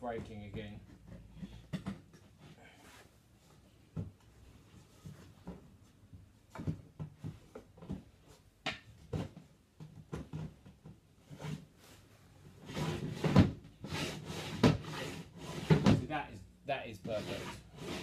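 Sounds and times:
drawer scraping slide: 0:12.6 - 0:16.0, 0:17.1 - 0:18.0.

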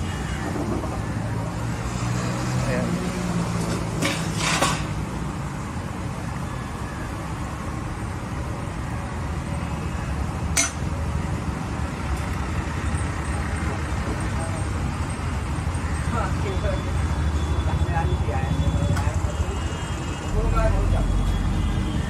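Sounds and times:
road traffic rumble: 0:00.0 - 0:22.0
dishes clinking: 0:10.6 - 0:10.8.

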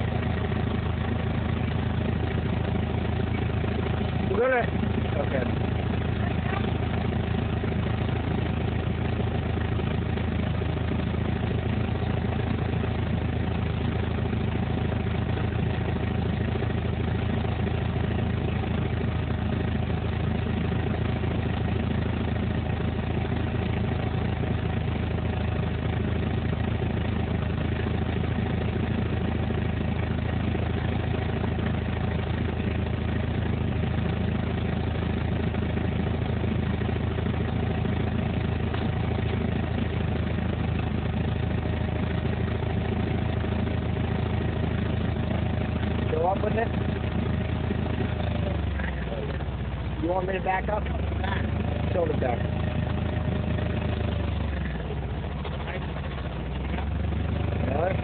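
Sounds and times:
forklift engine running: 0:00.0 - 0:58.0.

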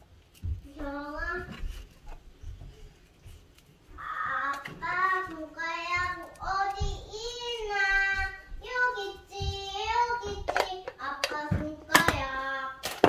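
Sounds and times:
child singing: 0:00.7 - 0:01.6, 0:04.0 - 0:12.8.

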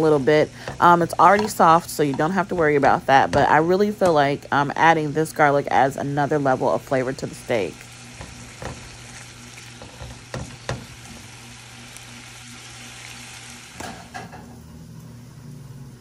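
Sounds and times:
beef sizzling in a frying pan: 0:06.3 - 0:14.3.

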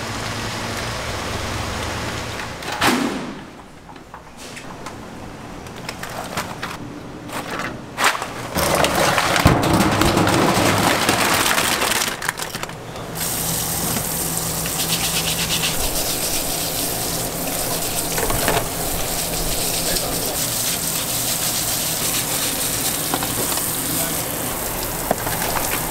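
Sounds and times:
hand truck rolling: 0:03.6 - 0:15.0, 0:15.7 - 0:25.9
shellfish clattering in a metal sink: 0:08.6 - 0:25.9
brush scrubbing shells: 0:13.2 - 0:25.9
tap water running: 0:13.2 - 0:25.9.

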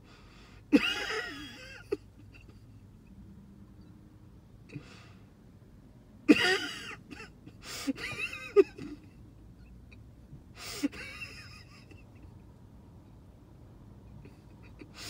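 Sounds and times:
stifled wheezing laughter: 0:06.3 - 0:09.2, 0:10.6 - 0:12.3, 0:14.2 - 0:15.0.

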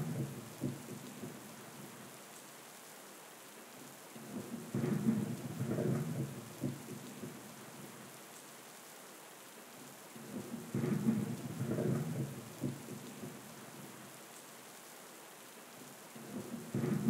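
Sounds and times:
low rumble of thunder: 0:00.0 - 0:01.4, 0:04.3 - 0:07.4, 0:10.3 - 0:13.4, 0:16.2 - 0:17.0
steady rain: 0:00.0 - 0:17.0.

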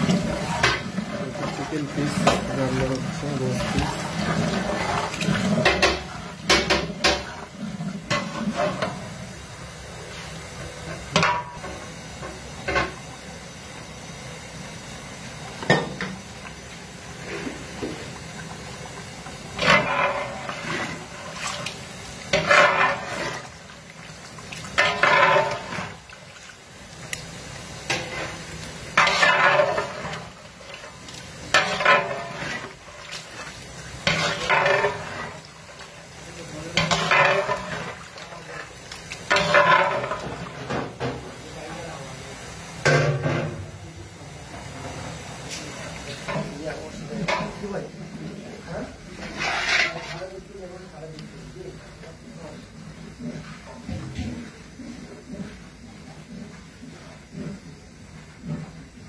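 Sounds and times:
cooking hiss: 0:00.0 - 0:59.0
spoon scraping in pot: 0:49.2 - 0:50.2.

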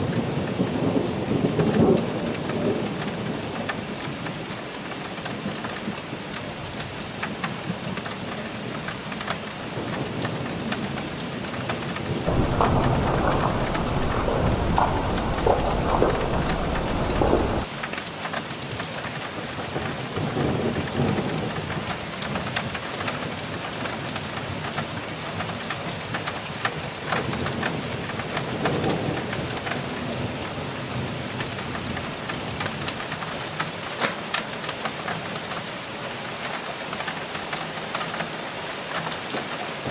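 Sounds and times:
heavy rain: 0:00.0 - 0:39.9
raindrops ticking close by: 0:00.0 - 0:39.9
thunder rolling: 0:12.3 - 0:17.7.

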